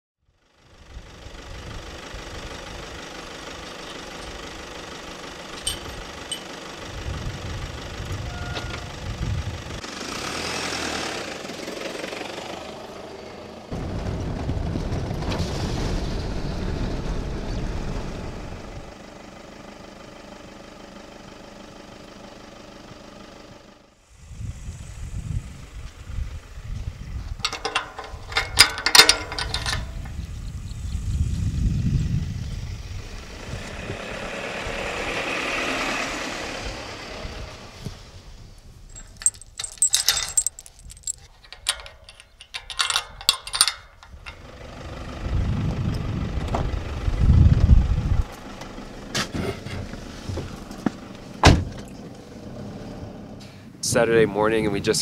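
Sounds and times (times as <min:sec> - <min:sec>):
wind: 0:00.2 - 0:55.0
vehicle running: 0:00.3 - 0:24.3, 0:25.1 - 0:55.0
rattling clatter: 0:03.8 - 0:07.0, 0:27.4 - 0:30.2, 0:38.9 - 0:44.6.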